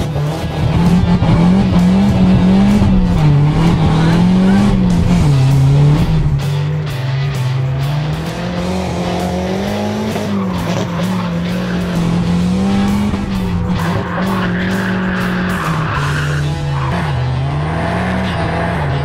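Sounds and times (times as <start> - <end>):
car engine revving: 0.0 - 19.0
tyre squeal: 13.8 - 17.1.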